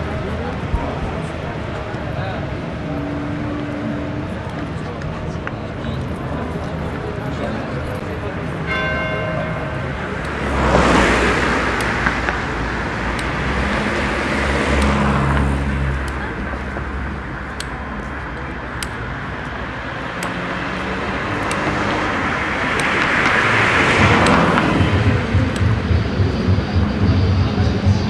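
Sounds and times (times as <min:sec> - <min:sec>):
vehicles passing: 0:00.0 - 0:28.0
steady low rumble: 0:22.2 - 0:28.0.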